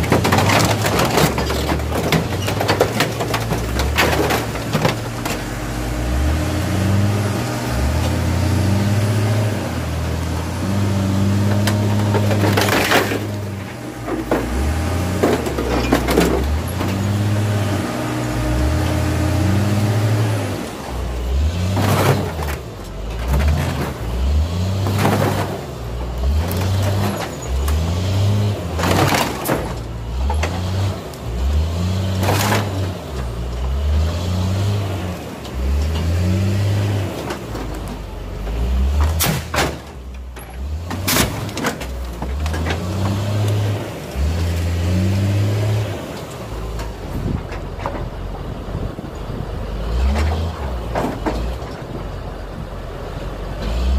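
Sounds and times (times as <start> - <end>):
sheet metal crunching: 0.0 - 6.9
diesel engine revving: 0.0 - 53.9.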